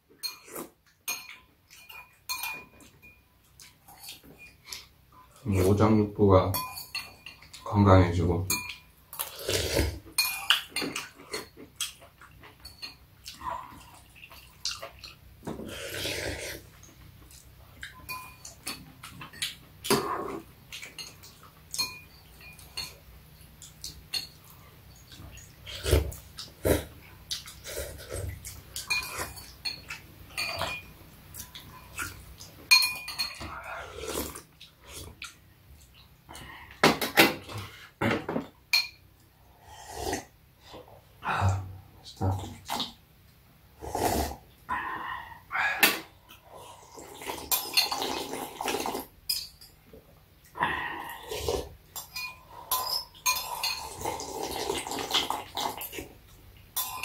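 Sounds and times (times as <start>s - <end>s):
spoons clinking on ceramic bowls: 0.2s - 3.2s, 6.5s - 7.6s, 8.5s - 8.9s, 10.2s - 11.0s, 18.0s - 18.8s, 20.9s - 23.0s, 28.8s - 30.9s, 32.7s - 33.5s, 49.3s - 49.8s, 52.0s - 53.9s
slurping and chewing: 9.1s - 23.0s, 23.6s - 36.8s, 39.3s - 43.0s, 43.8s - 49.2s, 50.4s - 57.0s.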